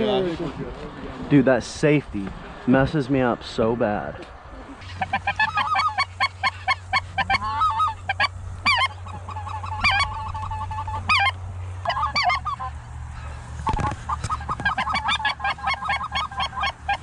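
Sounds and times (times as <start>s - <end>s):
geese honking: 4.8s - 17.0s.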